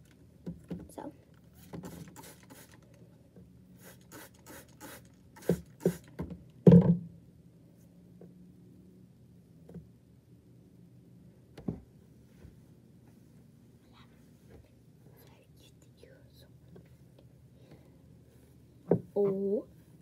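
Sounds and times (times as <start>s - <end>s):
spray bottle squirting: 1.6s - 2.8s, 3.8s - 6.2s.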